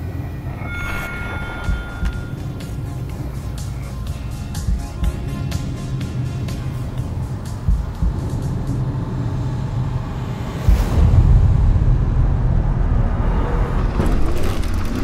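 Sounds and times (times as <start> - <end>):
wavering tone: 0.0 - 4.3
deep rumbling drone: 0.0 - 15.0.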